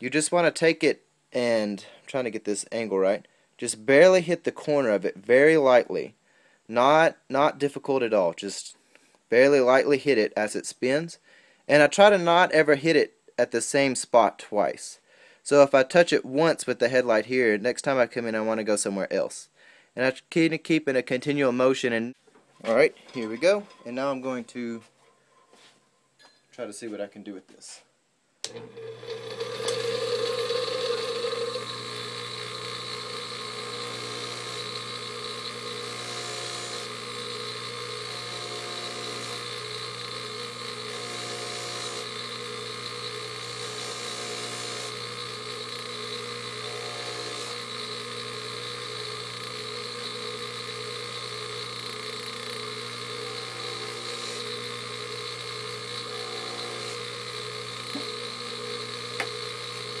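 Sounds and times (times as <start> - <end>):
bench grinder motor hum and whine: 28.5 - 60.0.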